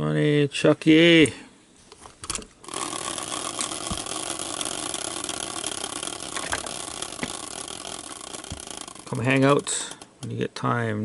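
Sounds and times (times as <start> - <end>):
faint clicks: 8.4 - 10.4.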